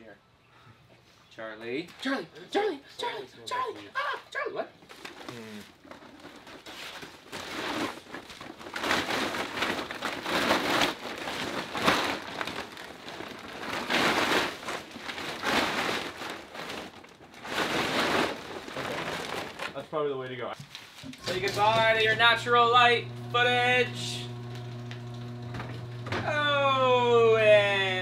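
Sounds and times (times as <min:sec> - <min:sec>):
plastic tarp crinkling and rustling: 0:04.9 - 0:26.1.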